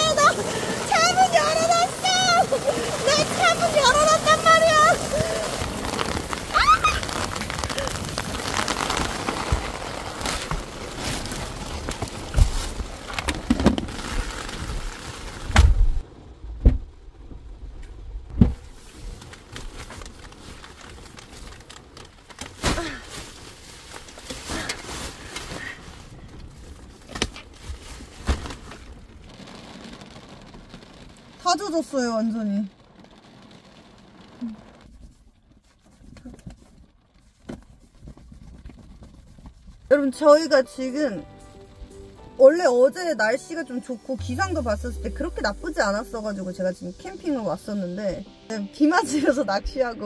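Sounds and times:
rain hissing: 0.0 - 36.2, 39.9 - 50.0
heavy thump: 15.5 - 17.0, 18.3 - 18.7
knocks and bumps: 15.5 - 17.5.

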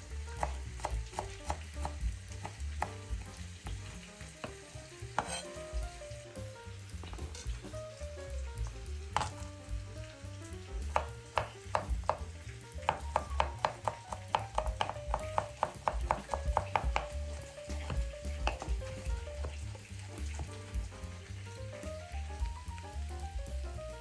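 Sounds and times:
soft background music: 0.0 - 24.0
knife chopping on wooden board: 0.4 - 5.8, 9.1 - 9.5, 10.8 - 20.6.

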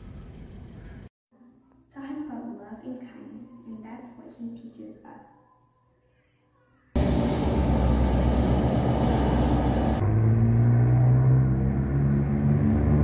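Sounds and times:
freight train rolling: 7.0 - 13.0
helicopter droning: 7.0 - 13.0.

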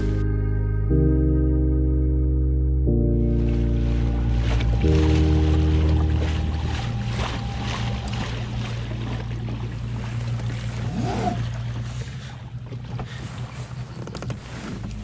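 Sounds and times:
low hum: 0.0 - 15.0
water washing along kayak hull: 3.1 - 15.0.

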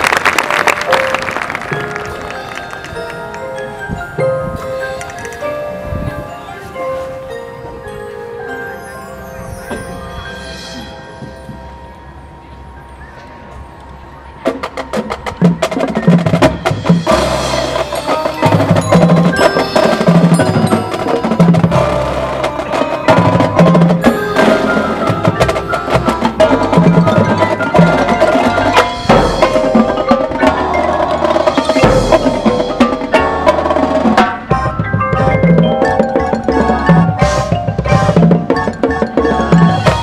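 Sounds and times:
drumline: 0.0 - 5.5, 14.4 - 40.0
marching band playing: 0.0 - 7.2, 14.4 - 40.0
mallet percussion: 0.4 - 40.0.

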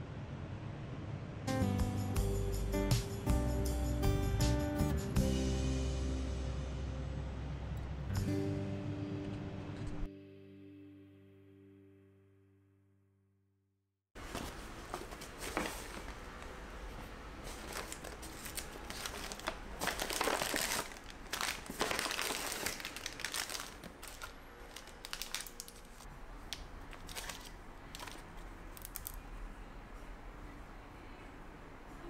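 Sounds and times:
paper bag crinkling: 14.2 - 29.2
plastic wrappers rustling: 14.2 - 29.2.

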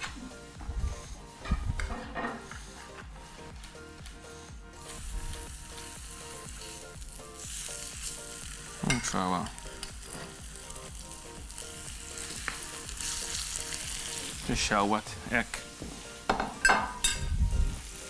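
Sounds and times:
fish sizzling in a frying pan: 4.8 - 18.0.

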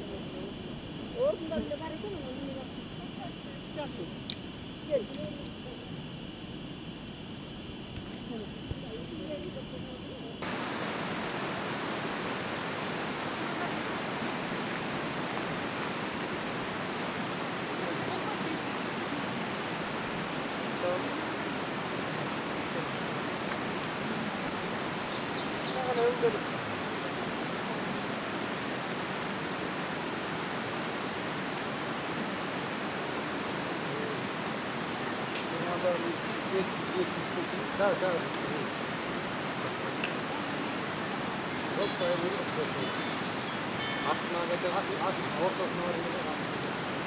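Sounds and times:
fast-flowing river rushing: 10.4 - 47.0.

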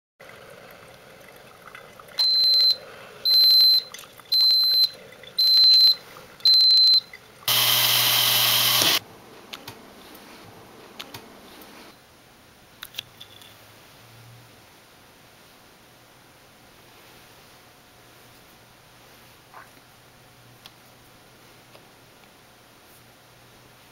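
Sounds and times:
coffee maker high beeps: 2.2 - 9.0
electric coffee grinder: 7.5 - 9.0.

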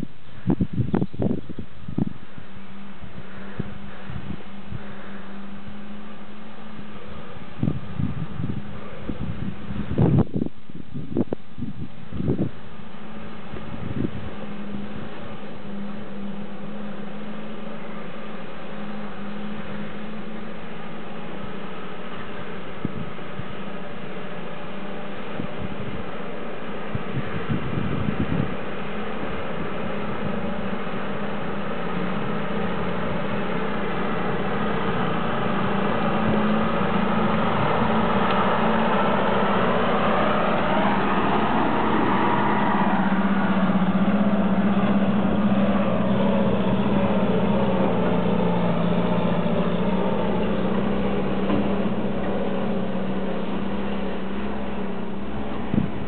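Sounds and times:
armoured car engine driving past: 12.1 - 56.0.

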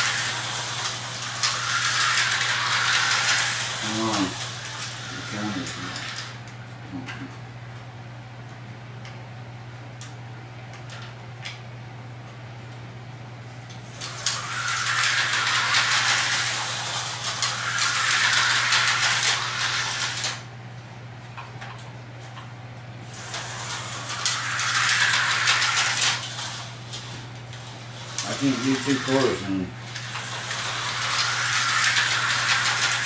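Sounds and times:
slot cars buzzing whir: 0.0 - 7.3, 13.7 - 20.6, 23.0 - 33.0
steady low hum: 0.0 - 33.0.

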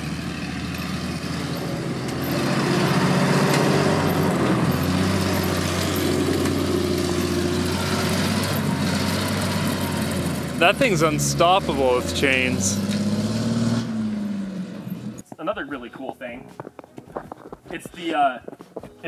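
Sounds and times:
fire truck engine driving past: 0.0 - 15.2.

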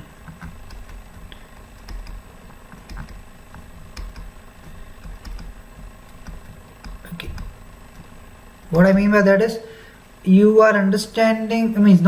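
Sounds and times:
stylus taps and clicks: 0.2 - 8.2.

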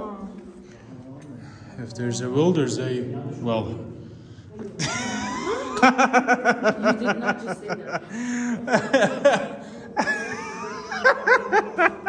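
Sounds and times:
people laughing: 4.6 - 12.0.

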